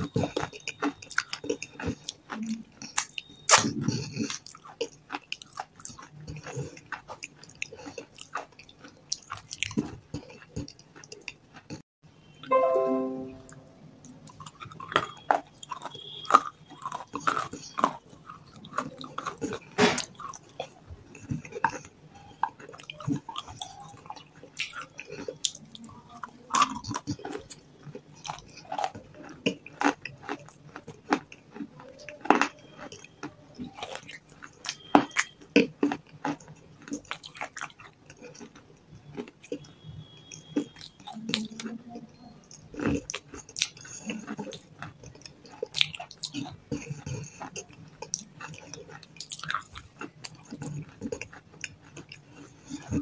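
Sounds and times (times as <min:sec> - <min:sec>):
crisp chewing crunches: 0:00.0 - 0:11.8, 0:14.2 - 0:53.0.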